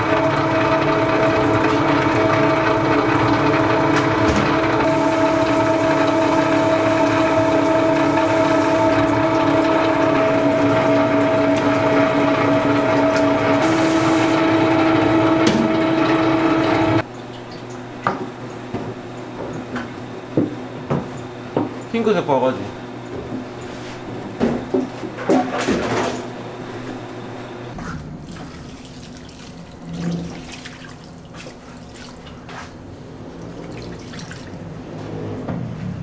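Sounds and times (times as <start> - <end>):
electric mill humming whine: 0.0 - 17.1.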